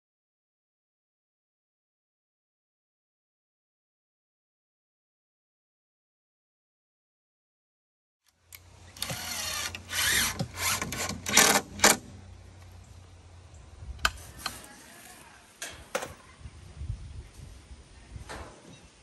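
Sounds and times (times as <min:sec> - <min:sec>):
loud bursts of tool noise: 0:08.9 - 0:12.2.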